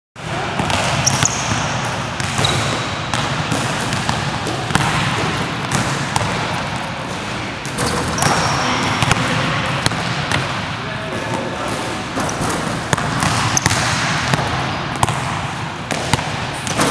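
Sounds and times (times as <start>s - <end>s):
basketballs bouncing on court: 0.2s - 16.9s
shoe squeaks: 1.0s - 1.6s, 2.4s - 2.8s, 7.0s - 8.8s.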